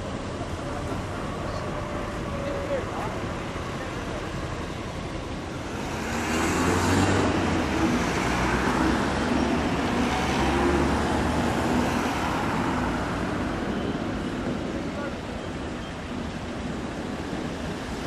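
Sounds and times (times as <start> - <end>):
locomotive diesel engine rumble: 0.0 - 6.0, 7.2 - 18.0
road traffic: 0.0 - 18.0.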